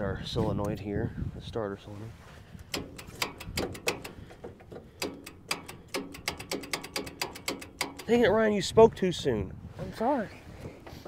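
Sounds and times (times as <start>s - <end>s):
starter solenoid clicking: 2.6s - 8.2s.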